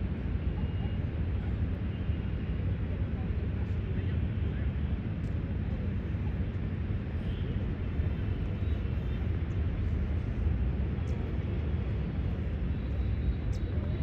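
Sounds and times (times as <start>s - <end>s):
low rumbling background noise: 0.0s - 14.0s.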